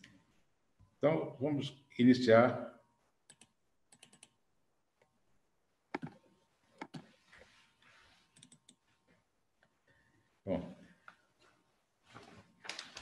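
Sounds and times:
computer clicks: 0:03.3 - 0:04.4, 0:05.9 - 0:06.2, 0:08.3 - 0:08.8.

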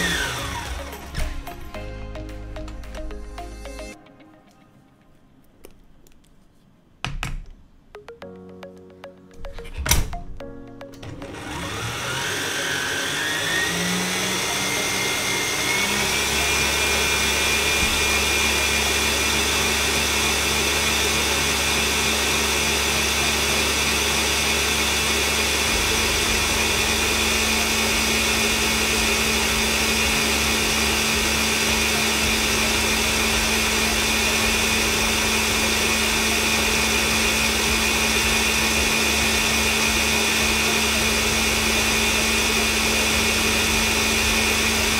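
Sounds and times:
electric mixer whine: 0:00.0 - 0:01.4, 0:11.0 - 0:44.9.

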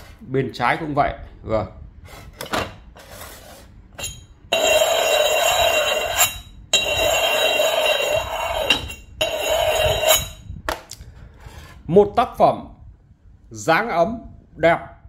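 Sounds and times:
teapot lid scraping with ringing: 0:04.0 - 0:10.5.

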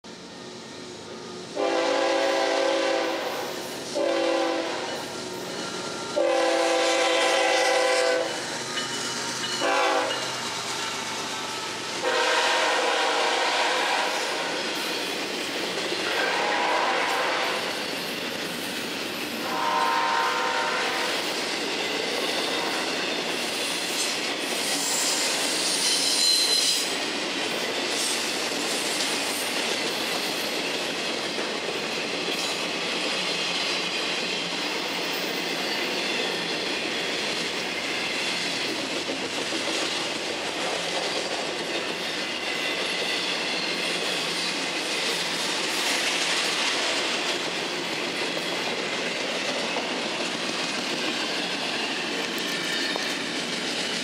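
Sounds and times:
freight train wheels on rails: 0:00.0 - 0:54.0
high wheel squeal: 0:24.6 - 0:27.0.

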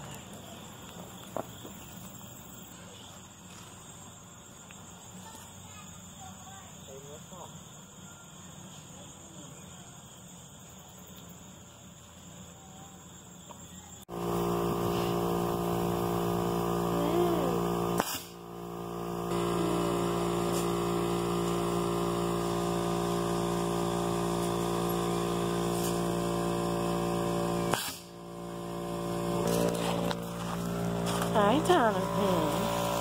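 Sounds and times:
steady machine hum: 0:14.0 - 0:33.0
sharp pop: 0:18.0 - 0:18.4, 0:27.7 - 0:28.1.

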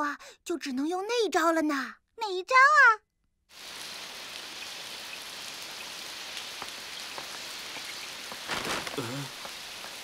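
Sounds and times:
steady rainfall hiss: 0:03.5 - 0:10.0.

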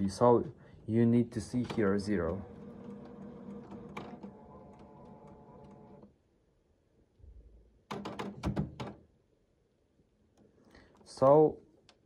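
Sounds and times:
printer mechanism whirring: 0:01.4 - 0:06.1.

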